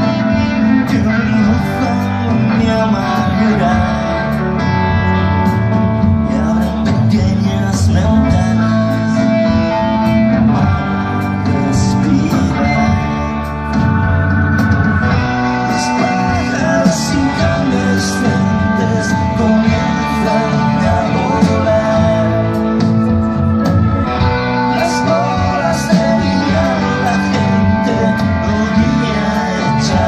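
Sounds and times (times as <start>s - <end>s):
live rock band playing: 0.0s - 30.0s.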